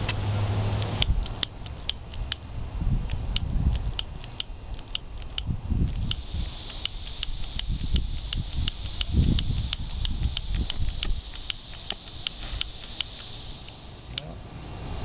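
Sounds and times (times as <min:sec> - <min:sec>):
steady high hiss: 0:00.0 - 0:15.0
spark lighter clicking: 0:03.4 - 0:14.3.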